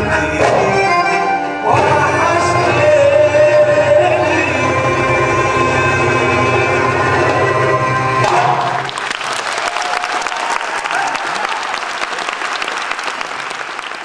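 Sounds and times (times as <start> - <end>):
live band music: 0.0 - 8.9
audience applause: 8.6 - 14.0.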